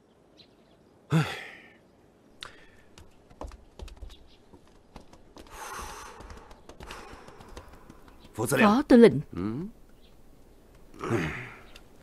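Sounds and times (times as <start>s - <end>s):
light irregular clicks and taps: 2.4s - 8.6s, 9.8s - 11.0s.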